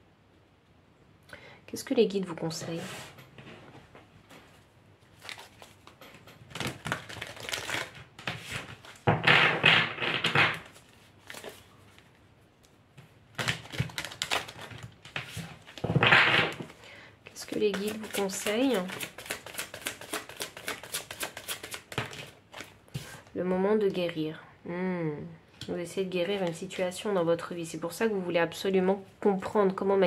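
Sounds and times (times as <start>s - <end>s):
deck of cards shuffled: 17.3s - 23.1s.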